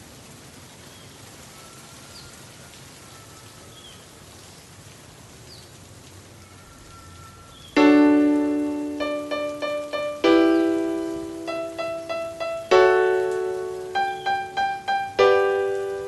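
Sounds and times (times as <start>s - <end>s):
rain hissing: 0.0s - 16.0s
faint high chirps: 6.4s - 16.0s.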